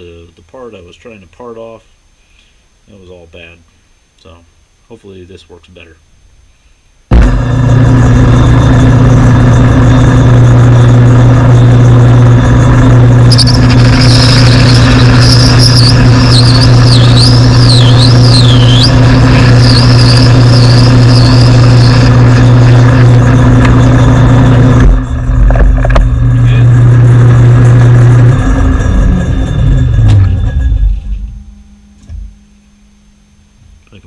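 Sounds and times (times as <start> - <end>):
lathe motor hum: 7.7 - 24.9
high wavering tool squeal: 11.4 - 25.1.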